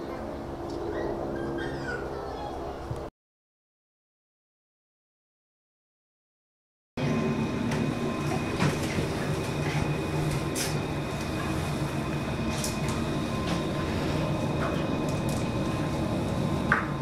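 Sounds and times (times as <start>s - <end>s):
mechanical hum with high whine: 0.0s - 3.1s, 7.0s - 17.0s.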